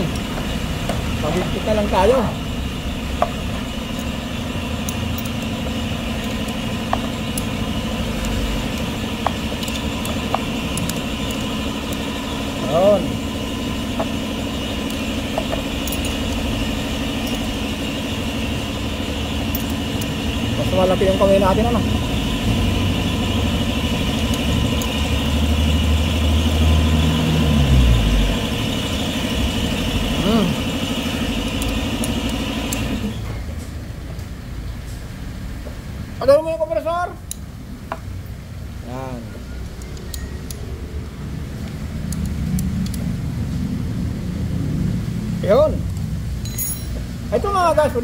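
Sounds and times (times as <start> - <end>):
air compressor running: 0.0 - 33.9.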